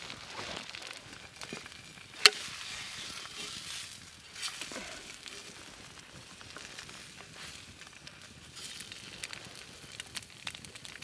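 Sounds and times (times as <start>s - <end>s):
eggs sizzling in a frying pan: 0.0s - 11.0s
wooden spatula scraping a pan: 2.3s - 6.7s.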